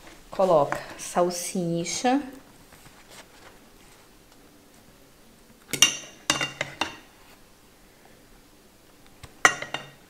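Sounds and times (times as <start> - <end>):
metal ladle clinking on saucepan: 9.4 - 10.0.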